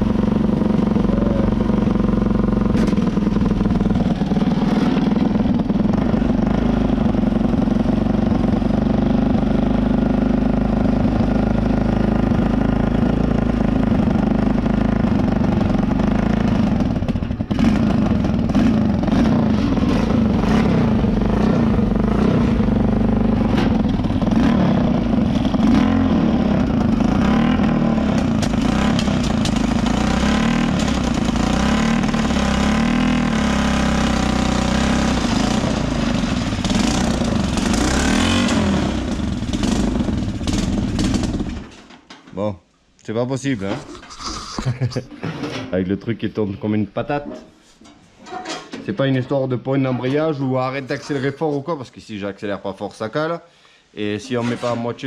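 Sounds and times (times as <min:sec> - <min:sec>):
small engine revving unevenly: 0:00.0 - 0:41.7.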